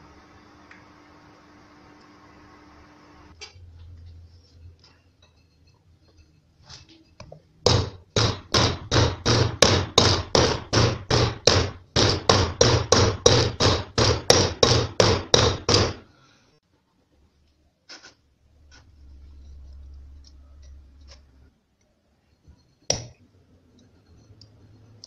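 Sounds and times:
hammer striking metal bearing: 7.6s - 16.0s.

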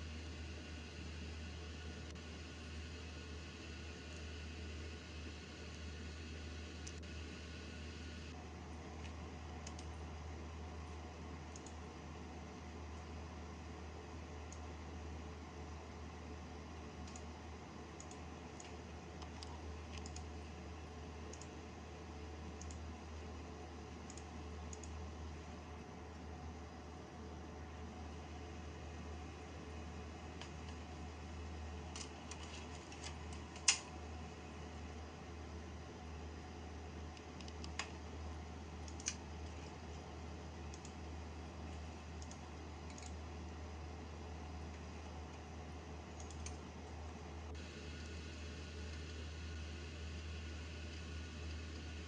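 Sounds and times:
computer hum and hiss: 0.0s - 52.0s
computer mouse clicking: 9.0s - 10.0s, 11.5s - 11.8s, 14.5s - 14.7s, 17.0s - 17.3s, 18.0s - 20.4s, 21.3s - 21.6s, 22.6s - 22.9s, 24.0s - 25.0s, 31.9s - 33.9s, 37.1s - 38.0s, 38.8s - 41.0s, 42.1s - 43.2s, 46.1s - 46.7s.

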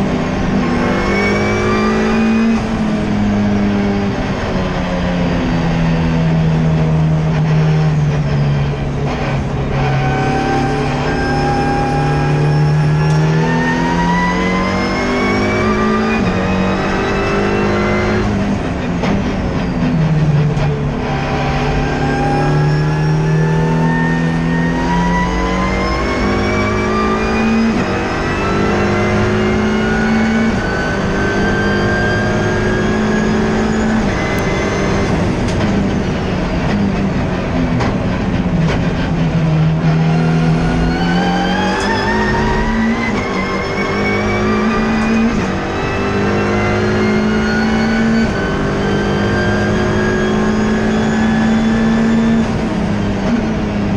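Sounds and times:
race car engine accelerating: 0.0s - 53.9s.

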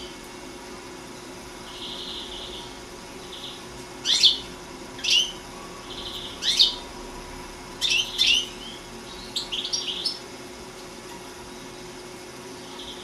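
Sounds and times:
buzzy bird trills: 1.1s - 6.9s, 7.7s - 10.3s, 12.6s - 13.0s
bird chirping: 1.6s - 6.9s, 7.8s - 10.3s, 12.6s - 13.0s.

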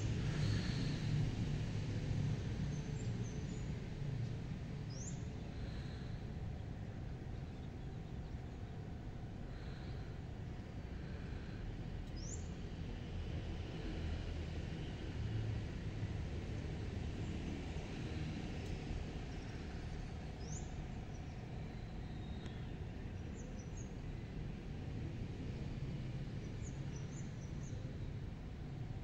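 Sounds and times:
faint steady hum: 0.0s - 29.0s
low outdoor rumble: 0.0s - 29.0s.

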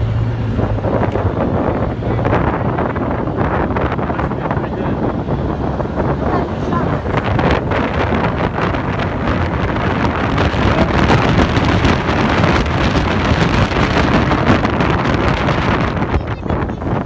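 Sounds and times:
vehicle engine running: 0.0s - 17.0s
wind buffeting microphone: 0.0s - 17.0s.

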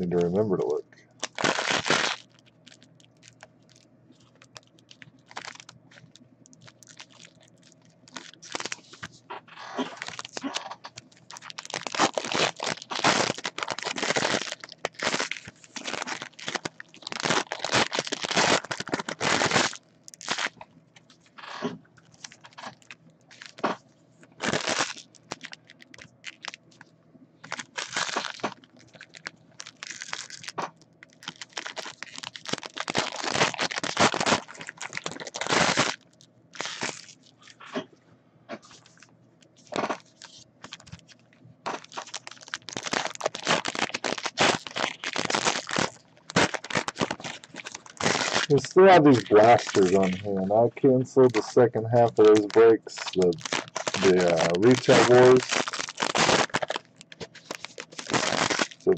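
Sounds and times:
foil wrappers crinkling: 0.0s - 37.7s, 38.6s - 50.6s, 51.2s - 58.9s.

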